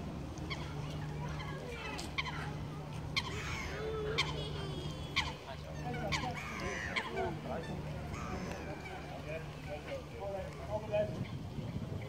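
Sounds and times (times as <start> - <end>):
geese honking: 3.2 - 10.1.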